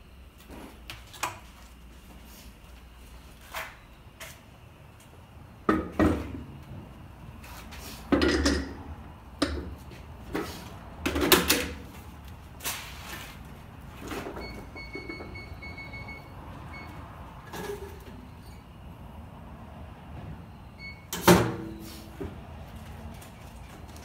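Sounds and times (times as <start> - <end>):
wheel clunking and knocking: 8.1 - 12.0, 14.0 - 15.9
short electronic beeps: 14.4 - 17.0.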